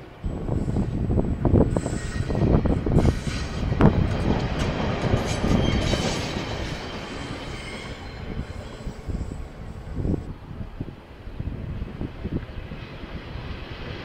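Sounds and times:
train rumble: 0.0s - 14.0s
train wheels clacking over rail joints: 2.3s - 8.6s.

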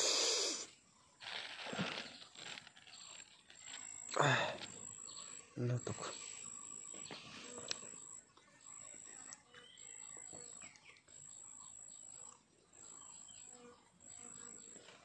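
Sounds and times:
insect trilling: 0.0s - 6.9s.

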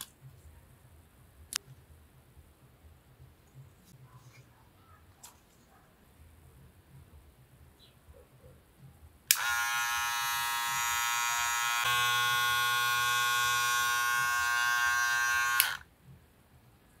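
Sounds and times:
hair clipper buzzing: 9.3s - 15.8s
hair clipper switch click: 9.3s - 15.8s.

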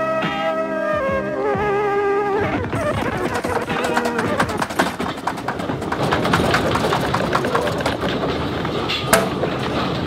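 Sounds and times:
earthquake rumbling: 2.8s - 10.0s.

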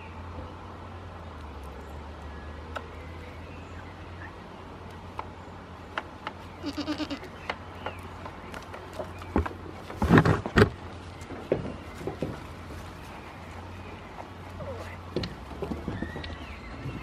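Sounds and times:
goat bleating: 6.6s - 7.3s.

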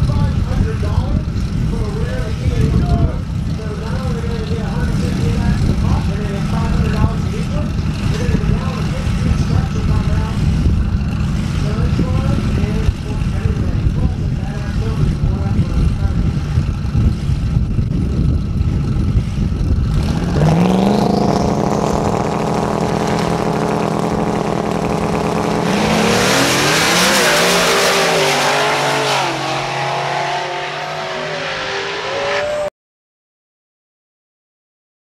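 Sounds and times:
drag car engines revving: 0.0s - 32.7s
cars accelerating away: 19.8s - 32.7s.

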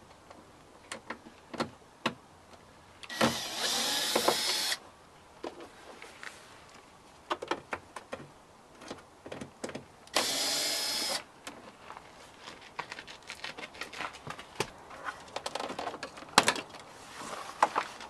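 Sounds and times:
cordless drill running: 3.1s - 4.8s, 10.2s - 11.2s.

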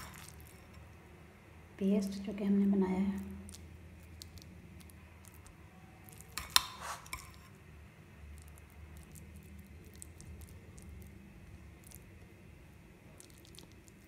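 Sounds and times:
spoon tapping and scraping on bread: 6.3s - 7.5s.

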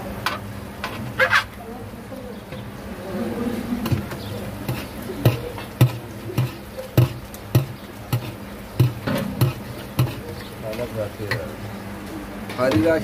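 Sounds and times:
low background hum: 0.0s - 13.0s
steady knocking: 4.7s - 10.8s.

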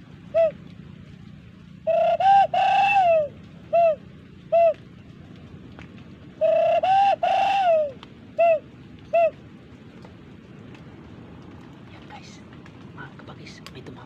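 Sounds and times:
dove cooing: 0.0s - 0.7s, 1.8s - 4.8s, 6.4s - 9.5s.

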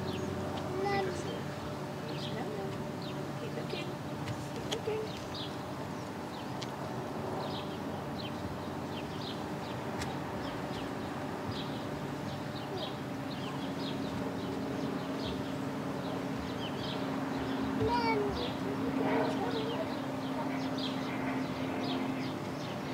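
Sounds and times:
steady low hum: 0.0s - 22.9s
bird chirping: 7.4s - 22.8s.

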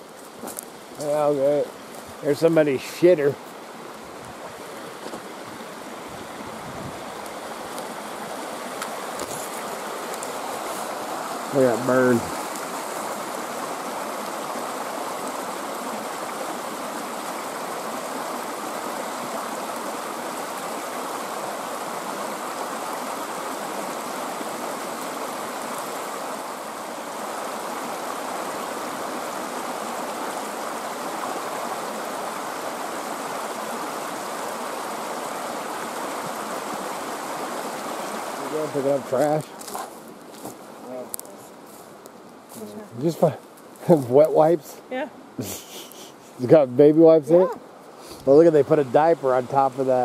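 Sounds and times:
creek rushing over stones: 0.0s - 50.0s.

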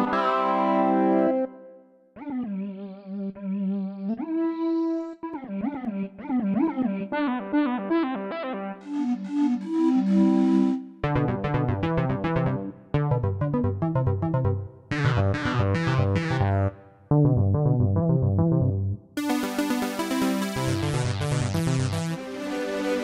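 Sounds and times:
synth keyboard phrases: 0.0s - 1.7s, 7.2s - 23.0s.

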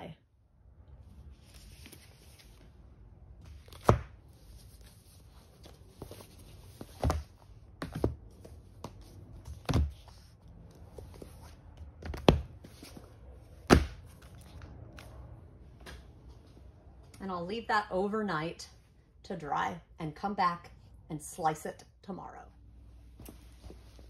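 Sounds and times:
heavy books thudding onto stack: 13.6s - 14.0s.

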